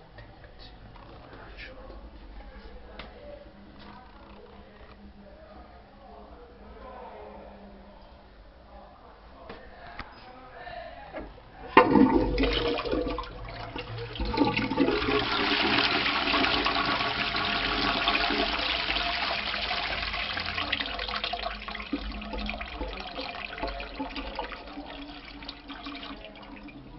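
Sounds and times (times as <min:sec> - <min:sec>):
toilet flushing: 0:11.7 - 0:26.9.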